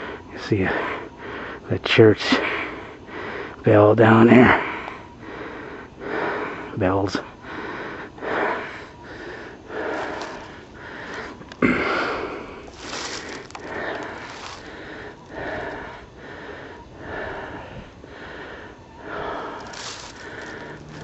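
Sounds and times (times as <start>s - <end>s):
footsteps crunching through dry leaves: 9.8s - 11.4s, 12.2s - 15.7s, 19.2s - 21.0s.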